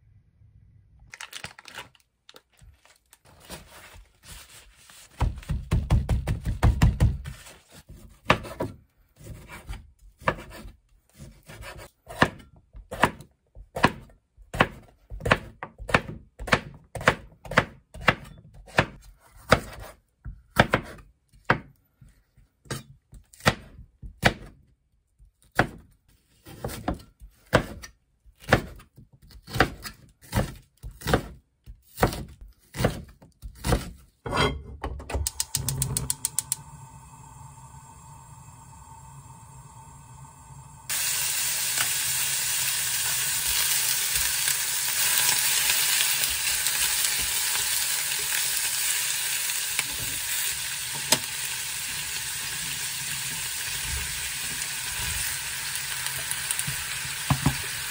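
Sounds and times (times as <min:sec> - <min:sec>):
knife chopping on wooden board: 0:05.2 - 0:21.7, 0:26.4 - 0:34.0
gas burner igniter clicks: 0:35.2 - 0:36.8.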